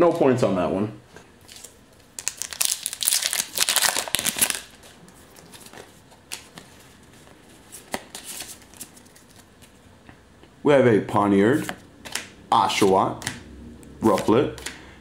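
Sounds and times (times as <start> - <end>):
foil wrapper tearing and crinkling: 1.5 - 5.7.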